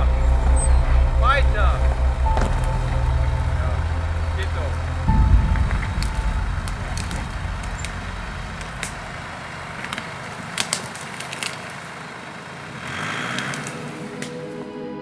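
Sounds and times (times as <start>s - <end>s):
low engine rumble: 0.0s - 15.0s
twigs and stones snapping under tyres: 1.8s - 14.5s.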